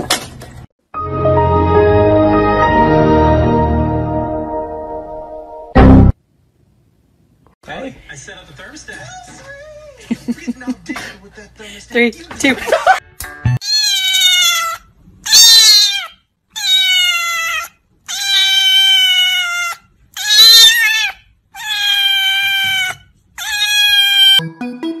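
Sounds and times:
kitten meowing loudly: 13.6 - 24.4.

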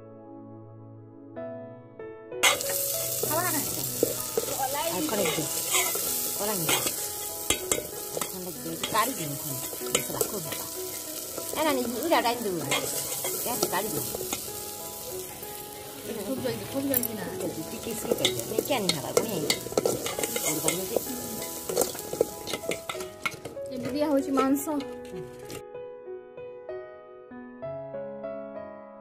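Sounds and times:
spatula scraping pan squeakily: 2.4 - 9.0
spices sizzling in hot oil: 2.4 - 25.6
spatula clicking against pan: 18.1 - 21.1.

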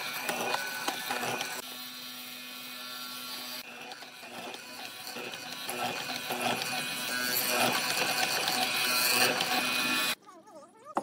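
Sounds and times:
chisel cutting into wood: 0.0 - 1.6, 3.7 - 10.2
mortiser motor humming: 0.0 - 10.2.

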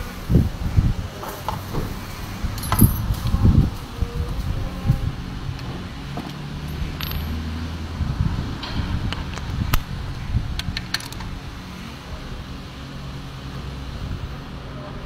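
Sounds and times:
metal tools clinking on engine: 2.6 - 3.1, 6.2 - 7.6.

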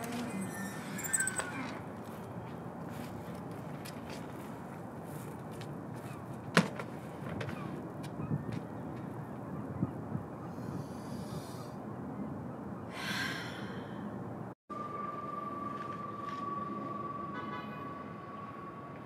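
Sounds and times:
city rooftop background hum: 0.0 - 19.0
breathy exhale: 10.5 - 11.8, 12.9 - 14.2.

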